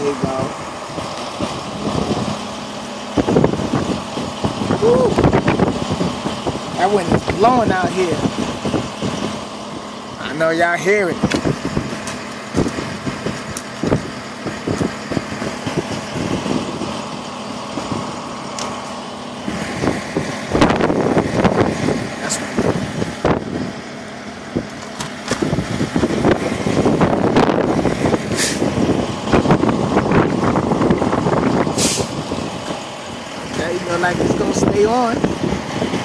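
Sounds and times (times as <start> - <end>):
gusty wind buffeting microphone: 0.0 - 36.0
truck engine idling: 0.0 - 36.0
short hisses: 28.3 - 28.7, 31.8 - 32.2.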